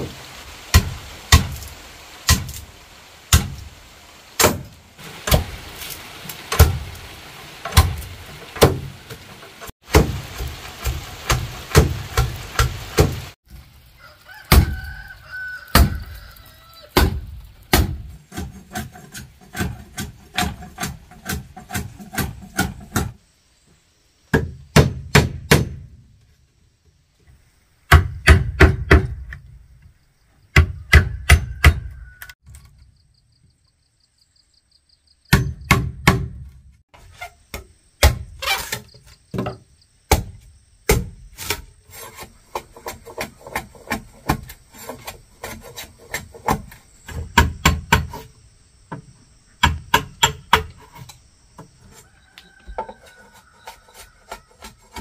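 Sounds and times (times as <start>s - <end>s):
tool striking wood: 24.3s - 26.0s, 27.9s - 29.3s, 35.3s - 36.6s, 39.4s - 41.2s, 46.1s - 48.2s, 49.6s - 51.1s.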